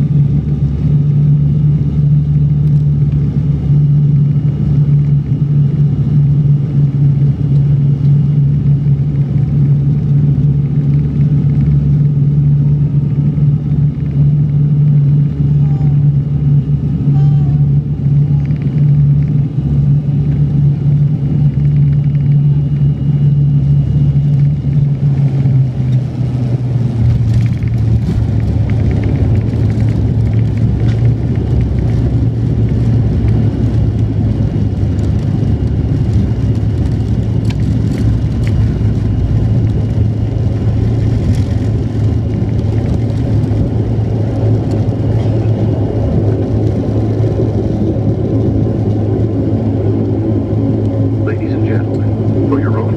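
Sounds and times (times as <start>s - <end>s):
propeller drone: 0.0s - 52.9s
wheels rumbling on gravel runway: 23.6s - 52.9s.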